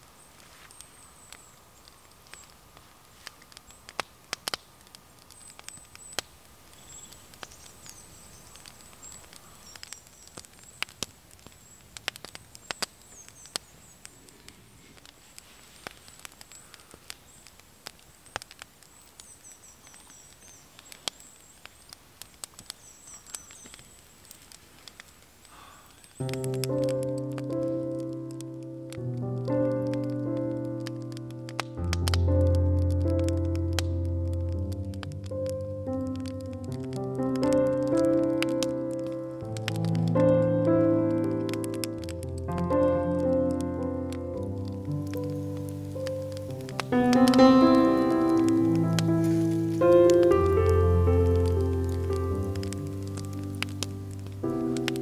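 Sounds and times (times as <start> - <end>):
wood fire crackling: 0.0 - 55.0
high bird calls: 5.3 - 17.6, 18.2 - 24.5, 25.5 - 26.4, 45.1 - 55.0.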